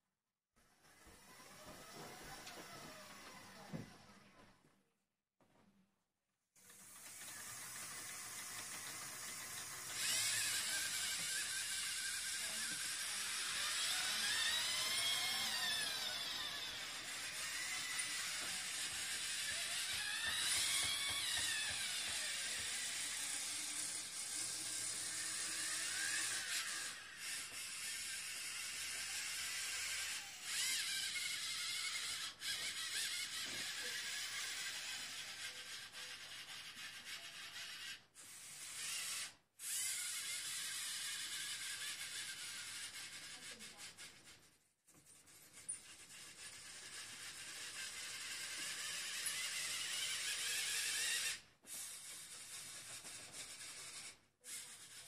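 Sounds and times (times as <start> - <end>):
robot motors whirring: 6.6 - 55.0.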